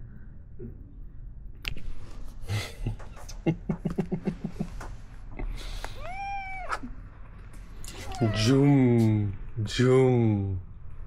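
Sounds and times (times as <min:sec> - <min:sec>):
kitten meowing: 0:05.9 - 0:06.9, 0:07.9 - 0:09.1.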